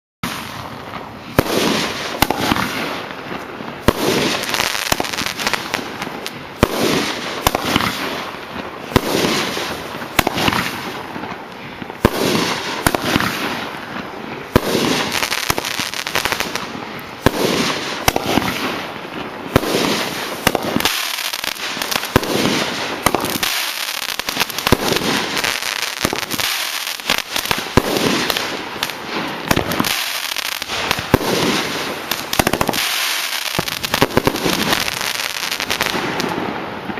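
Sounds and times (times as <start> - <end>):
firework bangs: 0.2 - 36.9
firework crackling: 0.2 - 36.9.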